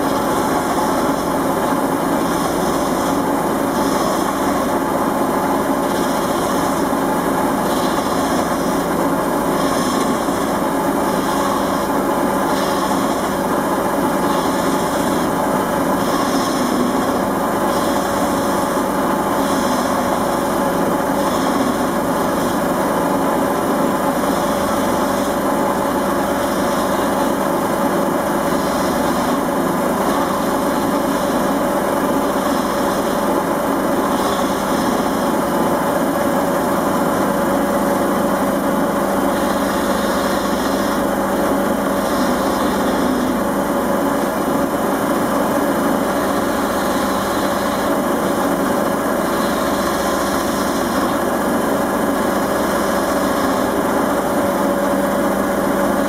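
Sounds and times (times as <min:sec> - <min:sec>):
gouge cutting spinning wood: 0:00.0 - 0:56.0
lathe motor hum: 0:00.0 - 0:56.0.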